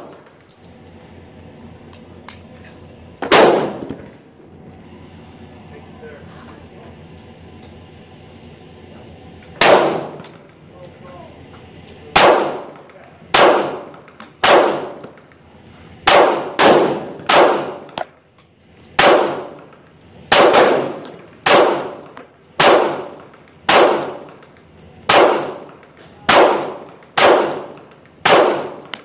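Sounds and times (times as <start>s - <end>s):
pistol shots echoing: 3.2s - 4.0s, 9.6s - 10.4s, 12.1s - 15.2s, 16.0s - 18.0s, 19.0s - 19.7s, 20.3s - 24.4s, 25.1s - 29.0s.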